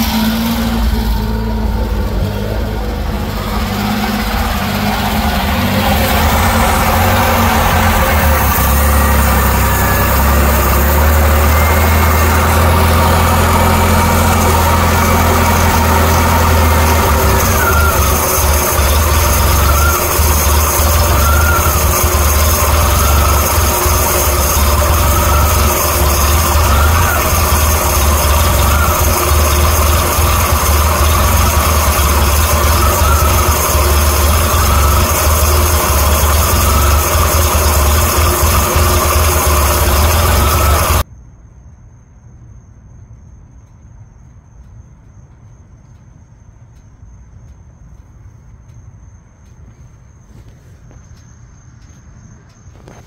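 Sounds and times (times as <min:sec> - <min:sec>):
faint rising and falling tone: 0:00.0 - 0:41.0
small engine idling: 0:00.0 - 0:41.0
faint crickets: 0:40.4 - 0:53.0.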